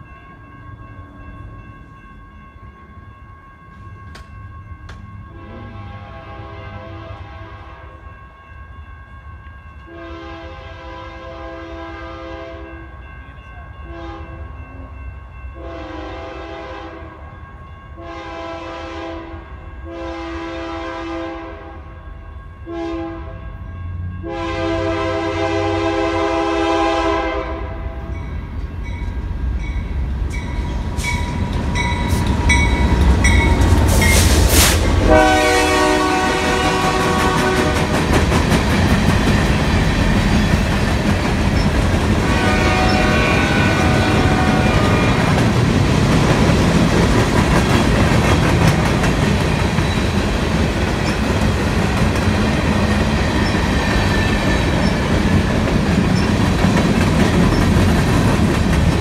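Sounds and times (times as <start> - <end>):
train horn blasts: 5.3 - 8.0, 9.8 - 12.9, 13.6 - 14.9, 15.6 - 17.3, 18.0 - 22.0, 22.6 - 23.6, 24.2 - 28.2, 34.0 - 38.0, 42.2 - 45.5
train wheels clattering on rails: 29.8 - 59.0.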